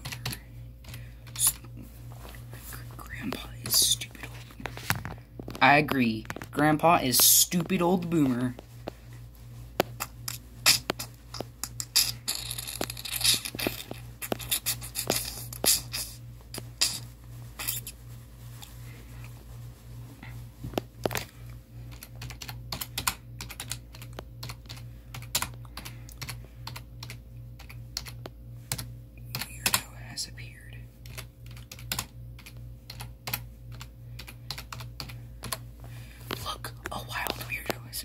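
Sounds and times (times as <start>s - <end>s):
steady low hum: 0.0s - 38.0s
rustling scratch: 1.4s - 5.8s, 7.5s - 21.2s
keyboard typing: 21.9s - 29.8s, 31.0s - 35.6s.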